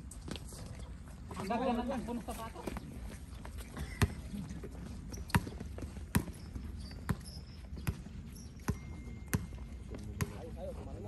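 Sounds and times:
basketball bouncing on hard court: 5.1s - 10.4s.

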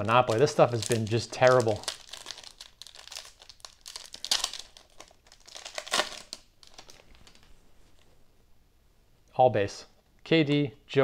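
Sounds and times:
wrapper crinkling and tearing: 0.0s - 7.5s.

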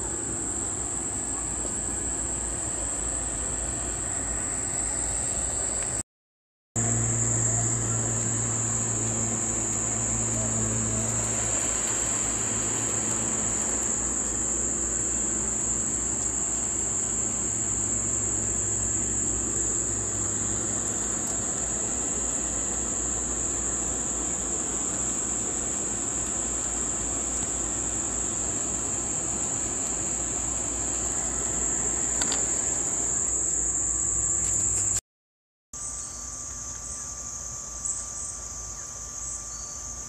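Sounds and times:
high-pitched insect chorus: 0.0s - 6.0s, 6.8s - 35.0s, 35.8s - 40.0s
constant low hum: 6.8s - 35.0s.

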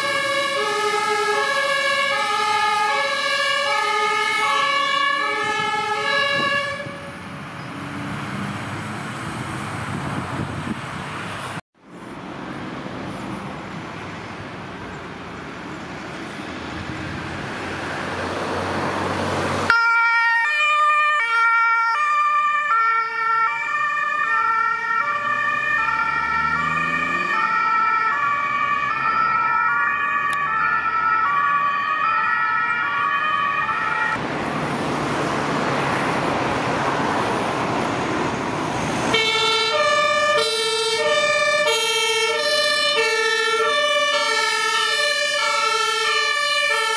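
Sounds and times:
two-tone siren: 0.0s - 7.3s, 19.7s - 34.2s, 39.1s - 46.9s
road vehicle noise: 0.0s - 46.9s
vehicles passing: 0.0s - 46.9s.

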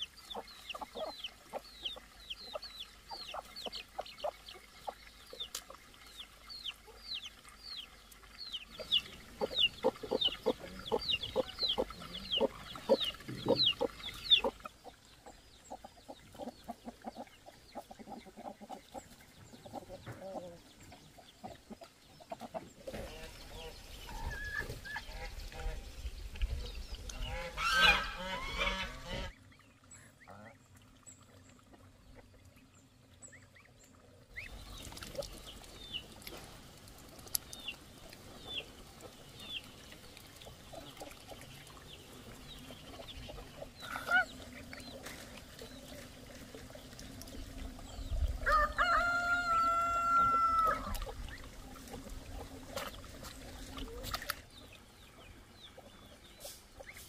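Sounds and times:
goslings peeping: 0.0s - 4.6s, 8.5s - 20.5s, 27.1s - 29.4s, 42.4s - 45.0s
chickens calling: 0.0s - 5.6s, 8.5s - 25.8s, 27.0s - 29.3s, 42.1s - 46.8s, 47.4s - 57.0s
rooster crowing: 48.4s - 50.9s.

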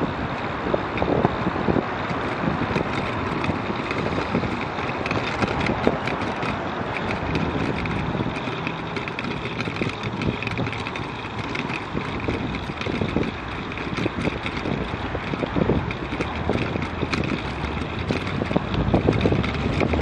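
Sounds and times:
road traffic passing: 0.0s - 20.0s
small rattles and clicks: 0.0s - 20.0s
wind rushing over microphone: 0.0s - 20.0s.

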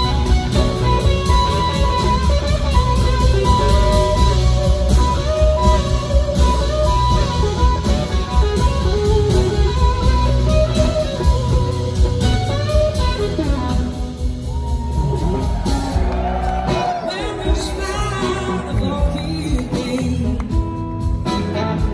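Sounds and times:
bass guitar: 0.0s - 21.9s
drums: 0.0s - 21.9s
electric guitars playing lead: 0.0s - 21.9s.

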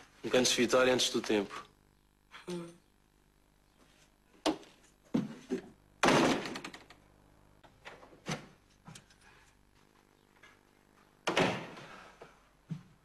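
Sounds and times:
door opening and shutting: 6.0s - 6.9s, 7.8s - 8.6s, 11.2s - 12.0s.

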